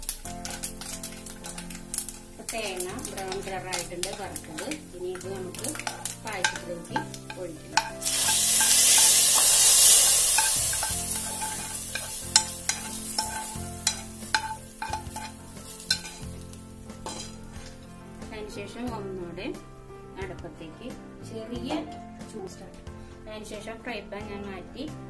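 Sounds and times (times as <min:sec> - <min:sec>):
hot fat sizzling: 0:00.0 - 0:18.1
spoon scraping a pan: 0:00.4 - 0:17.8.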